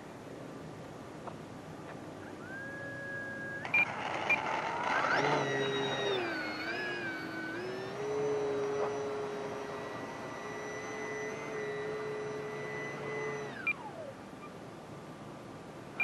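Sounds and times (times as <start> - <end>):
model plane motor whining: 2.3 - 14.5.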